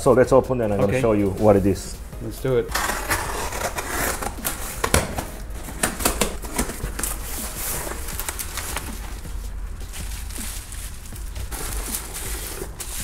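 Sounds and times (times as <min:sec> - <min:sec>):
tape and cardboard ripping: 0:02.7 - 0:13.0
packing peanuts and bubble wrap rustling: 0:02.8 - 0:13.0.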